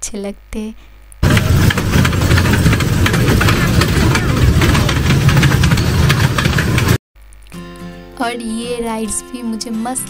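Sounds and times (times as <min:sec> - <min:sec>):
machinery clattering: 0:01.2 - 0:07.0.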